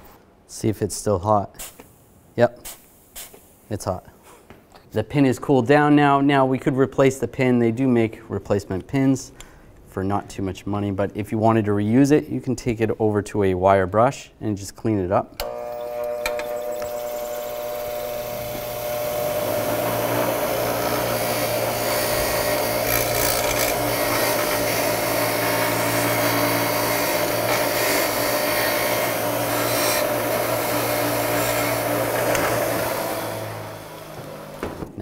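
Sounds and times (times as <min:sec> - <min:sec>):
bench grinder motor hum: 0:15.4 - 0:34.8
wire wheel scratching metal: 0:15.9 - 0:33.2.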